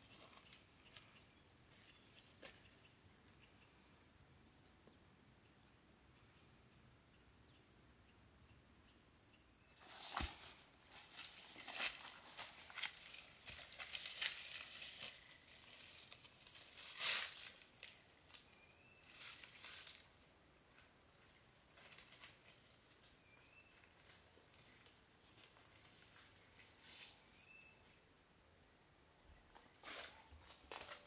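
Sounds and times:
insects droning: 0.0s - 31.0s
footsteps through undergrowth: 9.8s - 20.1s.

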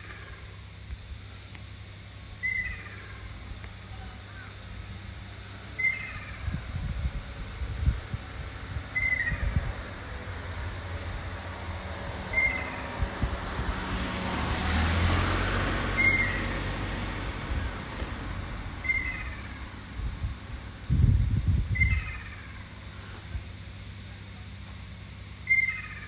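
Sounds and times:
low rumbling: 0.0s - 24.1s
kingfisher calling: 2.3s - 6.8s, 8.8s - 11.1s, 11.9s - 13.2s, 15.8s - 19.9s, 21.7s - 23.4s, 25.4s - 26.0s
broad swell of noise: 3.0s - 21.7s.

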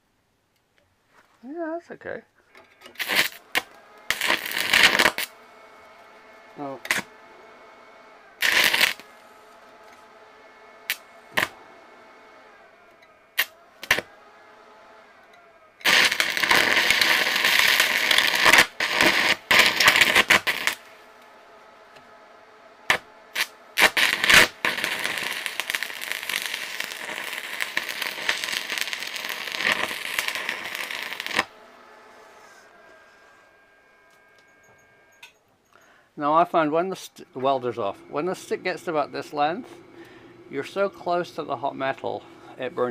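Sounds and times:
welding arc crackling: 2.8s - 7.2s, 8.4s - 10.0s, 10.8s - 11.6s, 12.8s - 14.1s, 15.8s - 21.2s, 22.8s - 31.7s
electrode striking cracks: 3.0s - 5.3s, 8.4s - 9.1s, 15.8s - 20.8s, 22.9s - 31.5s.

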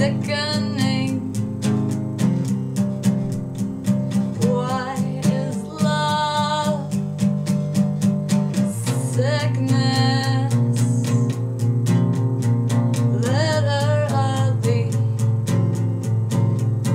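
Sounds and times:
woman singing: 0.0s - 1.5s, 4.2s - 7.1s, 8.5s - 11.5s, 13.0s - 15.4s
acoustic guitar strumming: 0.0s - 16.9s.

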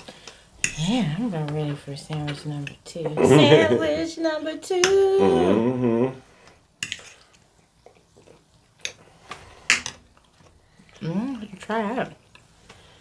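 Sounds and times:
person speaking: 3.1s - 4.4s, 5.0s - 6.2s.

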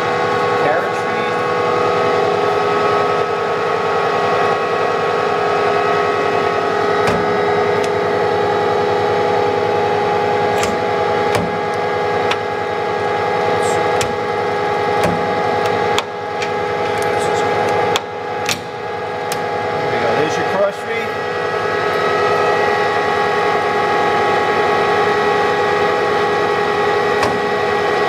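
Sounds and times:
lathe humming and whining: 0.0s - 28.0s
lathe controls clicking and knocking: 10.5s - 12.5s, 13.9s - 14.3s.

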